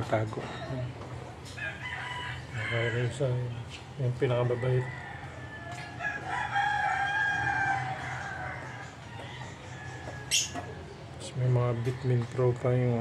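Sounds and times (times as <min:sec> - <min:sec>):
rooster crowing: 0:01.6 - 0:03.2, 0:04.4 - 0:10.9.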